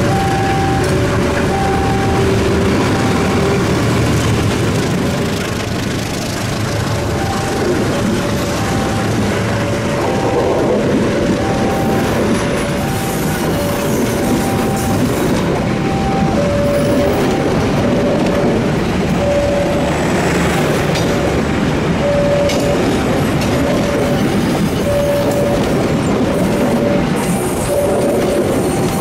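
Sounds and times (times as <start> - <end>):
train wheels clattering over rails: 0.0 - 29.0
level-crossing two-pitch chime: 22.0 - 23.0.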